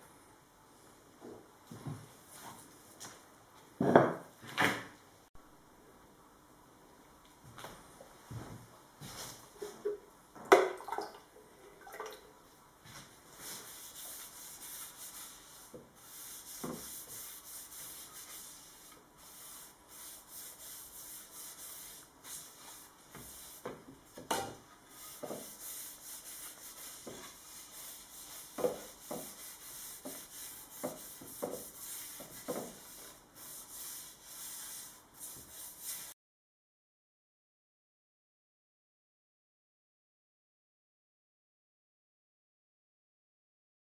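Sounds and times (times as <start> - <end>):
paintbrush swishing on wood: 12.9 - 23.8, 24.9 - 36.2.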